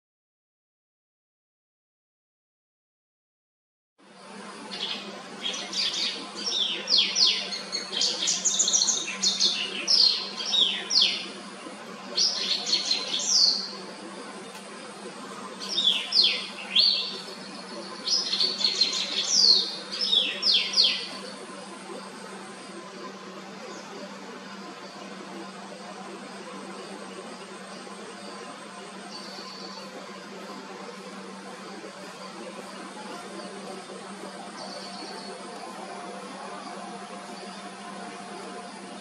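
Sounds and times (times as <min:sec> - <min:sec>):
bird singing whistles and trills: 0:04.8 - 0:11.3, 0:12.1 - 0:13.8, 0:15.6 - 0:21.2.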